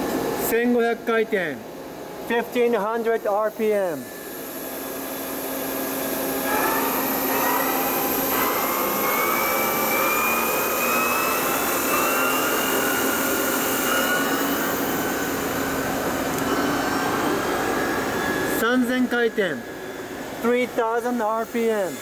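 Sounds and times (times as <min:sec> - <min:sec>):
boring machine spindle whirring: 0:04.1 - 0:21.2
rising machine whine: 0:04.5 - 0:20.5.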